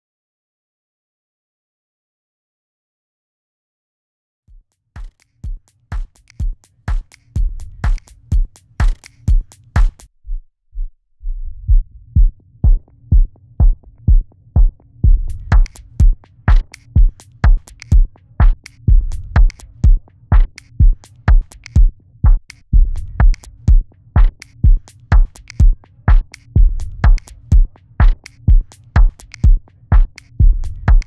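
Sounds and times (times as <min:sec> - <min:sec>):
filtered electronic drum loop: 0:05.4 - 0:10.1, 0:15.0 - 0:31.0.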